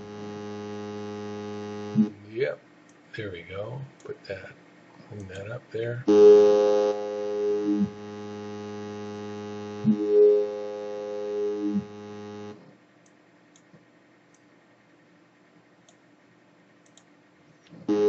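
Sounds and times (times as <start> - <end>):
synthesizer wobble bass note: 0.0 - 2.1, 6.1 - 12.6.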